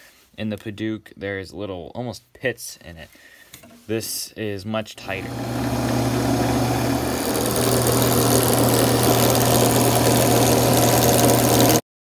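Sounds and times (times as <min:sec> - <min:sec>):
wood lathe motor hum: 0:05.1 - 0:11.8.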